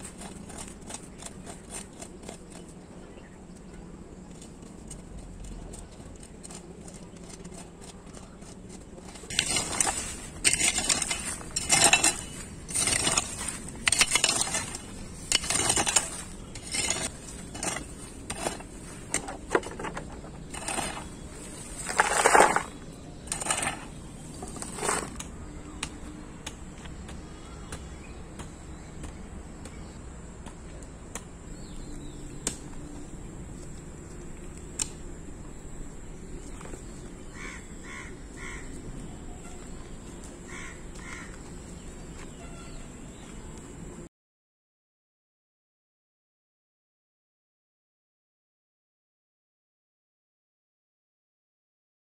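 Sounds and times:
hand tool scraping leaves on soil: 0:00.0 - 0:03.1, 0:04.2 - 0:25.3.

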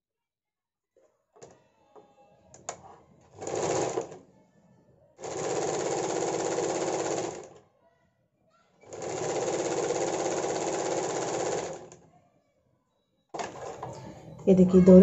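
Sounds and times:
sewing machine stitching: 0:02.7 - 0:04.2, 0:05.2 - 0:07.6, 0:08.8 - 0:12.1.

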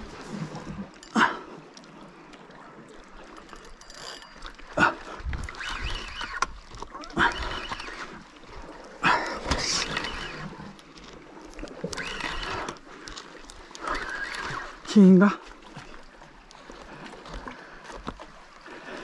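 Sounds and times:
fishing reel winding: 0:03.2 - 0:04.7, 0:05.4 - 0:08.2, 0:09.7 - 0:10.7, 0:11.6 - 0:15.0.

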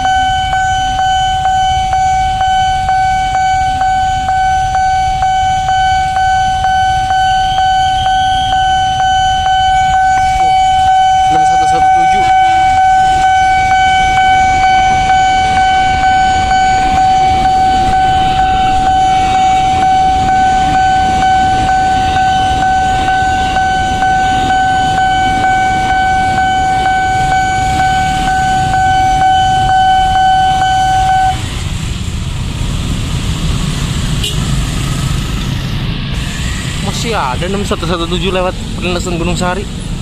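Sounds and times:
level crossing alarm tone: 0:00.0 - 0:31.6
passing train rumble: 0:00.0 - 0:40.0.

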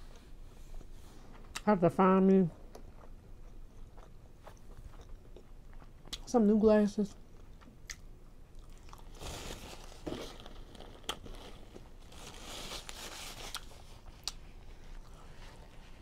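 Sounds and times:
paper napkin crinkling: 0:09.1 - 0:14.1.

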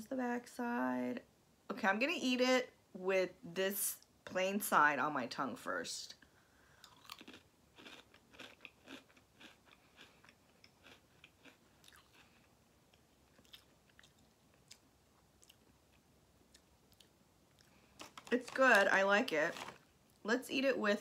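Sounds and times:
person chewing a crisp cracker: 0:06.7 - 0:18.3.

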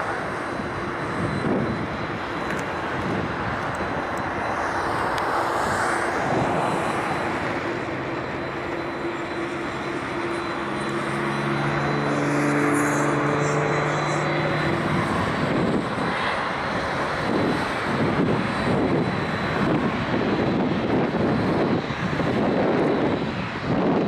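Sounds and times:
jet engines taxiing: 0:00.0 - 0:24.0.

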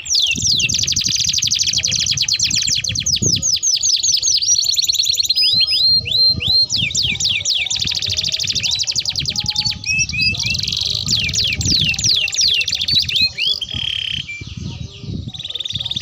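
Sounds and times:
canaries singing trills: 0:00.0 - 0:16.0.

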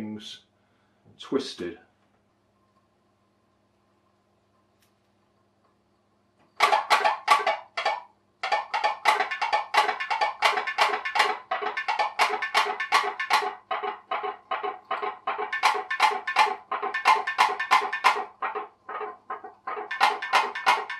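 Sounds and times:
pop-pop boat boiler popping: 0:06.6 - 0:20.9.

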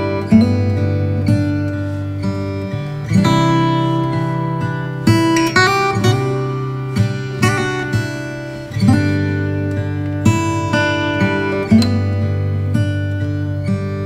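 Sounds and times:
acoustic guitar strumming chords: 0:00.0 - 0:14.0.

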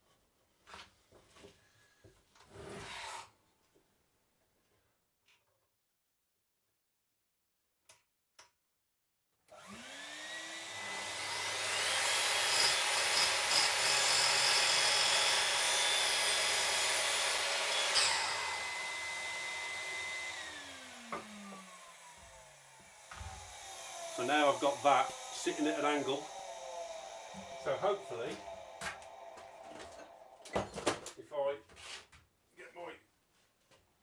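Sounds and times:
electric chop saw cutting wood: 0:09.5 - 0:30.6.

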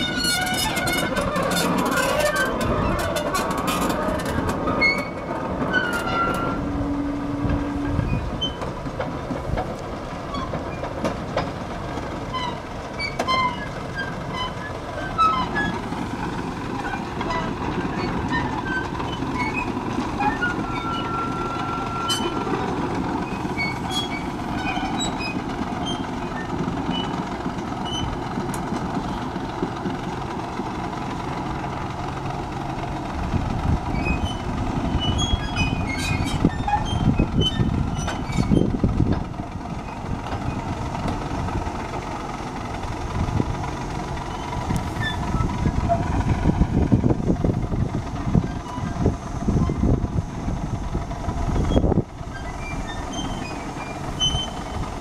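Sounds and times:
high squeaks: 0:00.0 - 0:07.0, 0:12.3 - 0:27.2, 0:33.8 - 0:38.8, 0:44.2 - 0:46.4, 0:51.6 - 0:55.0
held squeal: 0:00.0 - 0:08.7, 0:12.3 - 0:28.3, 0:33.7 - 0:39.0, 0:44.2 - 0:46.6, 0:48.4 - 0:50.0, 0:51.5 - 0:55.0
diesel locomotive running: 0:00.0 - 0:55.0.

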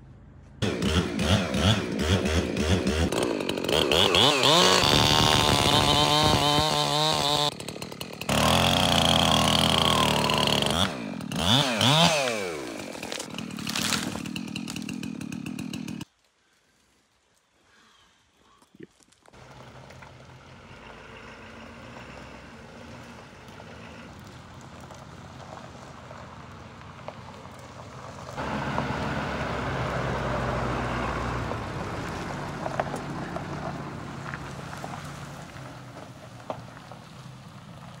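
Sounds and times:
dump truck driving by: 0:19.4 - 0:38.0.

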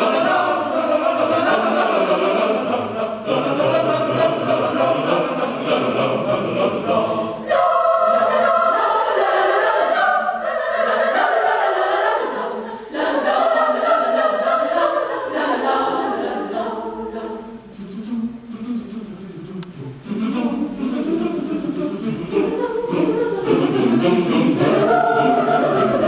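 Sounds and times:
mixed choir singing: 0:00.0 - 0:18.2, 0:20.0 - 0:26.0.

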